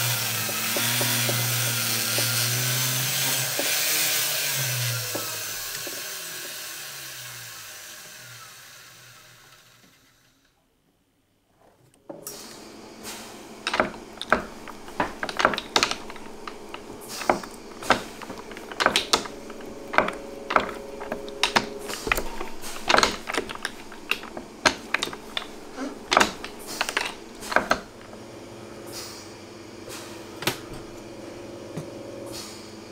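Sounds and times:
steady low hum: 12.8s - 32.3s
rolling mill metallic clicks: 13.6s - 28.2s.

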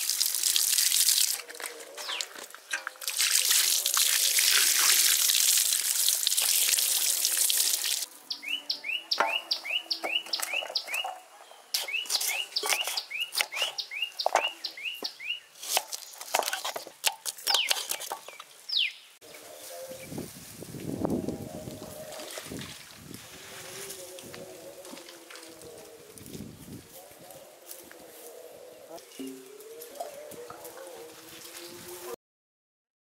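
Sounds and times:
water pouring: 0.0s - 8.1s, 21.8s - 23.0s.

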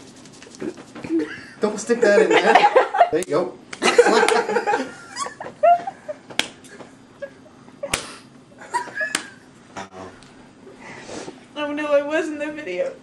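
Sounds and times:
hand slapping bare skin: 6.3s - 6.7s, 7.9s - 8.2s, 9.1s - 9.4s.

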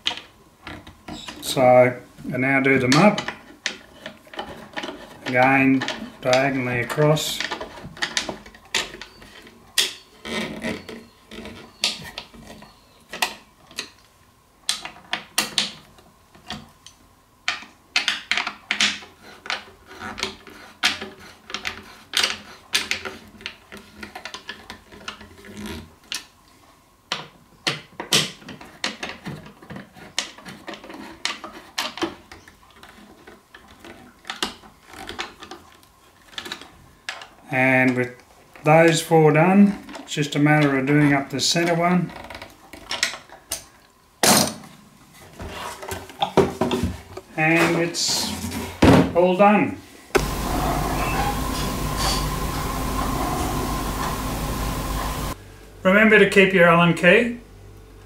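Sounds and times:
metal-on-metal scrapes: 50.2s - 55.4s.

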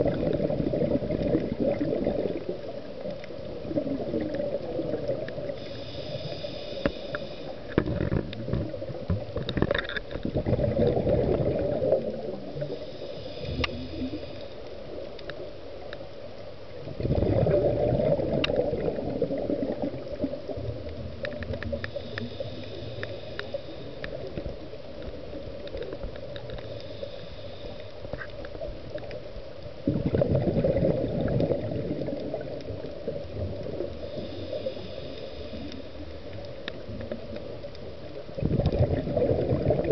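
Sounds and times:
exhaled bubbles burbling: 0.0s - 5.6s, 7.7s - 12.8s, 16.8s - 22.2s, 29.8s - 34.0s, 36.4s - 39.9s
inhalations through regulator: 5.6s - 7.6s.

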